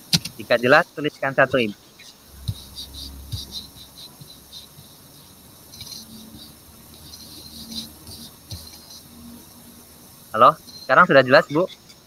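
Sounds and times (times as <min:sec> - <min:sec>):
faint insect chirping: 0:00.0 - 0:12.0
soft low thumps: 0:02.3 - 0:09.6.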